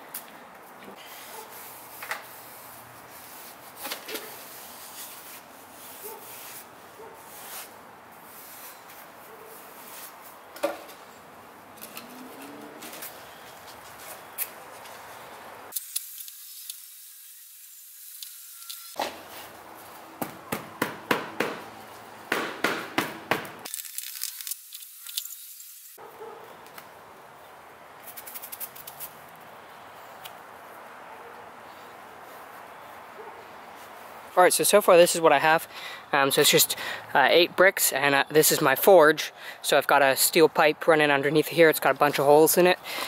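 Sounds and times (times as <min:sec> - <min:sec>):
sand scraping and patting: 0:01.3 - 0:10.4.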